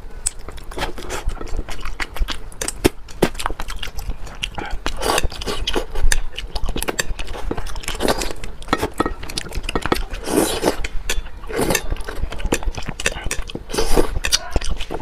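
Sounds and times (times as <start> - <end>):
wet chewing and mouth smacking: 0.2 - 15.0
slurping: 4.5 - 15.0.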